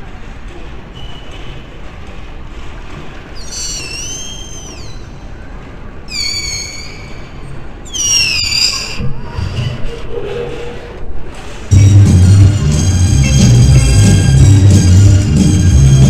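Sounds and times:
low crowd murmur: 0.0s - 7.9s, 8.5s - 16.0s
shrill high-pitched calls: 3.4s - 5.2s, 6.1s - 9.0s.

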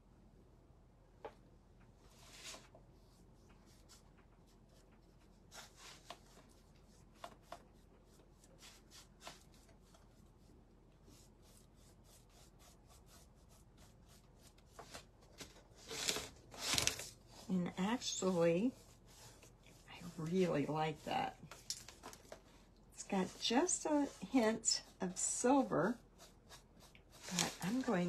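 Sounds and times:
paintbrush scratching on board: 2.2s - 14.8s, 17.4s - 21.6s, 23.0s - 28.0s.

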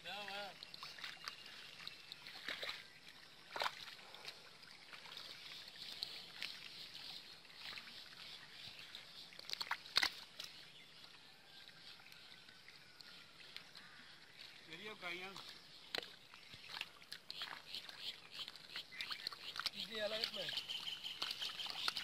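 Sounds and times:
mud squelching and water sloshing: 0.0s - 22.0s
sharp wet slaps: 3.5s - 3.9s, 9.4s - 10.6s, 15.9s - 22.0s.

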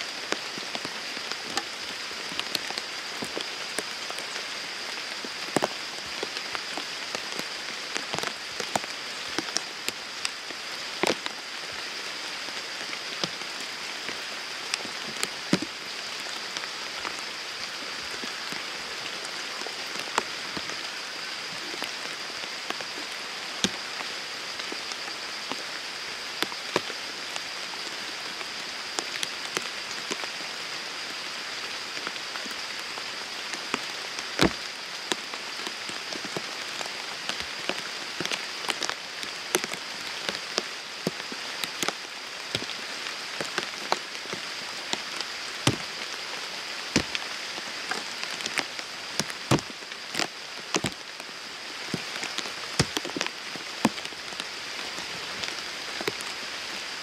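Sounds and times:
rain falling: 0.0s - 57.0s
raindrop taps: 34.4s - 34.6s, 45.7s - 45.9s, 47.0s - 47.2s, 47.9s - 51.0s, 51.9s - 54.1s.

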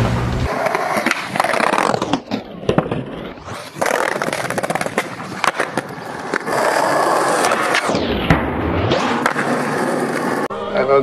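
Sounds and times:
skateboard clacking: 0.0s - 3.1s, 3.7s - 7.9s
skateboard wheels rolling on pavement: 0.0s - 10.5s.

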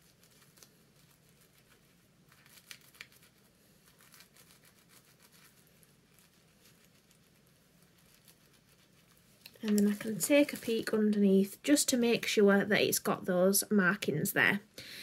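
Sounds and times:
chalk scratching fabric: 0.0s - 9.4s
tissue paper crinkling: 0.0s - 11.0s.

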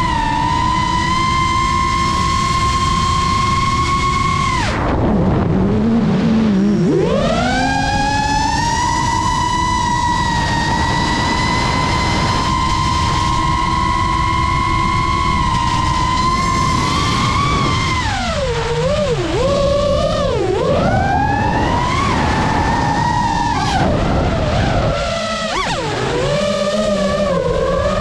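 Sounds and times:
drone motors whining: 0.0s - 28.0s.

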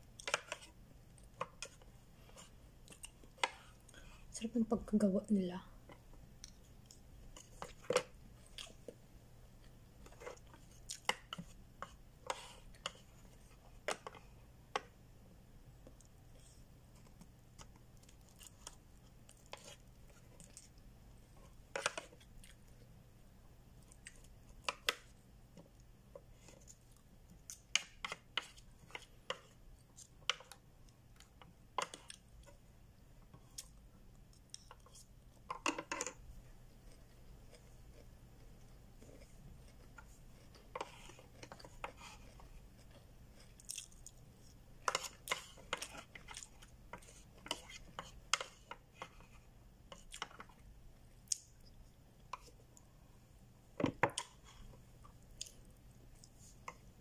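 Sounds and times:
low steady hum: 0.0s - 57.0s
chewing: 6.4s - 9.0s, 36.7s - 49.2s.

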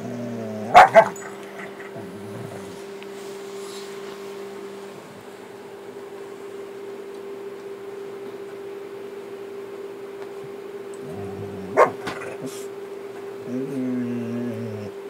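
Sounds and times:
dog snarling bark: 0.0s - 2.8s, 11.0s - 12.6s
dog growling: 0.0s - 3.0s, 11.0s - 12.7s, 13.4s - 15.0s
steady hum: 0.0s - 15.0s.

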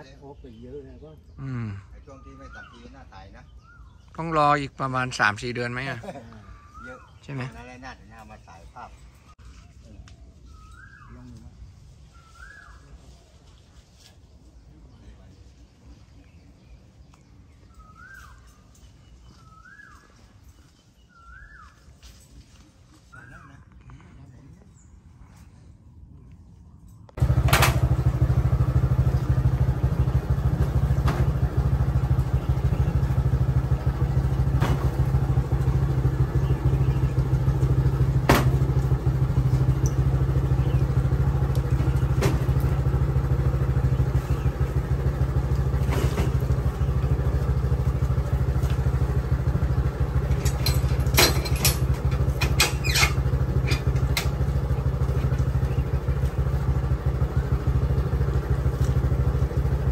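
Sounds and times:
motorcycle engine idling: 27.2s - 59.9s.

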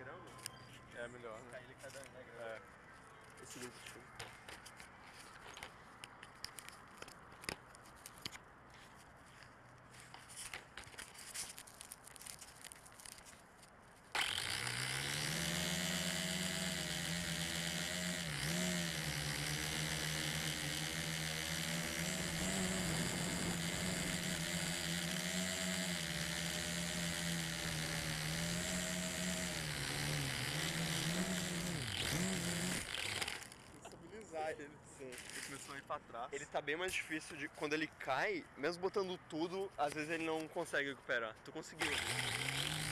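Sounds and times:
drone propellers buzzing: 14.2s - 33.7s, 41.8s - 42.9s.

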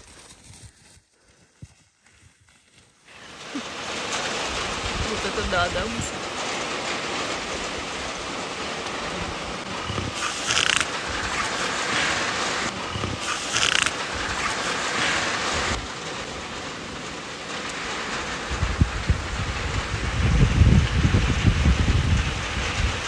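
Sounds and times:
heavy rain pouring: 3.1s - 23.0s
low rumble: 17.7s - 23.0s.

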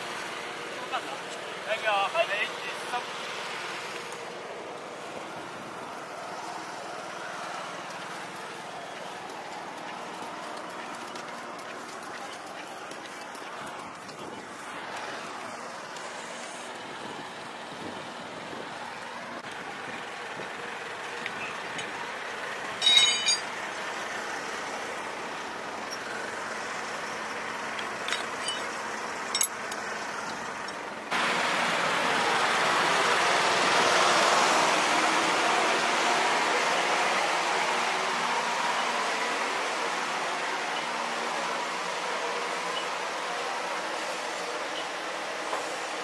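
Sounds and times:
vehicle engine noise: 0.0s - 46.0s
sharp metallic clank: 22.8s - 23.5s.

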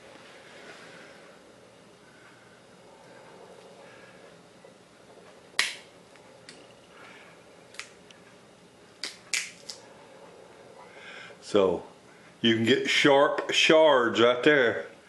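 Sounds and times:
bone cracking in pliers: 5.6s - 5.9s, 7.7s - 8.0s, 9.0s - 9.8s.

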